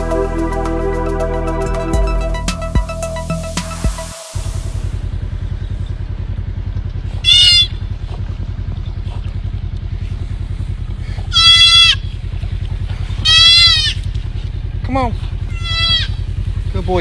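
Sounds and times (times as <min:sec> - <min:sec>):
low rumble: 0:00.0 - 0:07.2
fawn distress bleats: 0:07.2 - 0:07.7, 0:11.3 - 0:12.0, 0:13.2 - 0:14.0, 0:15.5 - 0:16.2.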